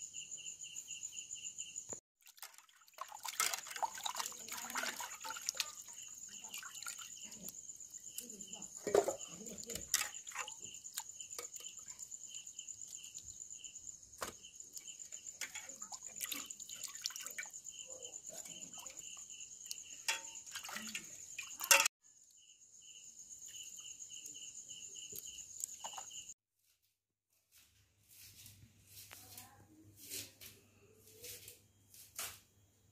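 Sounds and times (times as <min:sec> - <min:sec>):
night insects chirping: 0:00.0 - 0:26.4
water sloshing and dripping: 0:02.2 - 0:13.5, 0:14.2 - 0:21.9, 0:25.1 - 0:26.4.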